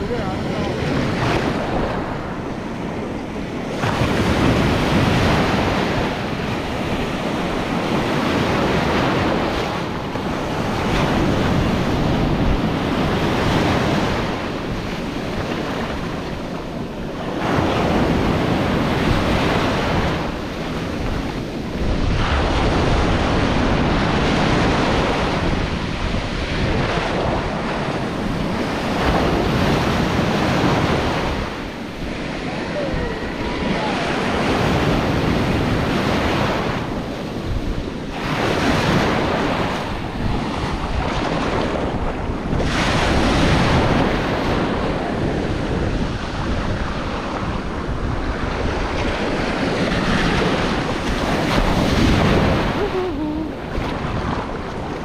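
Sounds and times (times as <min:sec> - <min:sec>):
ocean surf washing over sand: 0:00.0 - 0:55.0.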